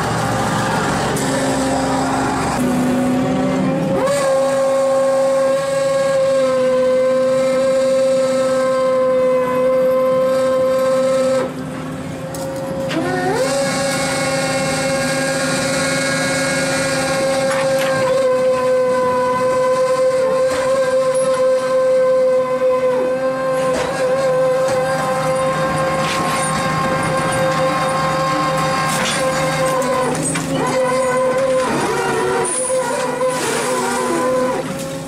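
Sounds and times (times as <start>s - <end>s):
boat engine: 0.0s - 35.0s
hydraulic winch whining: 0.0s - 35.0s
water noise: 12.7s - 35.0s.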